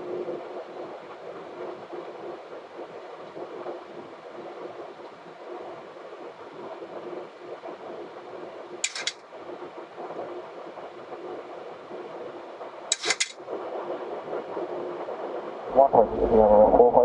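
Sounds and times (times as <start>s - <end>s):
rapid sharp clicks: 8.8s - 9.4s, 12.9s - 13.4s.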